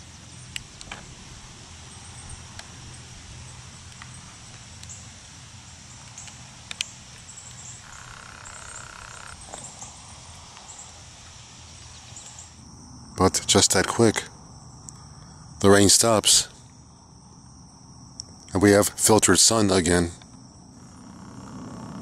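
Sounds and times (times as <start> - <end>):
insects chirring: 0.0 - 22.0
faint clicks: 6.0 - 9.7.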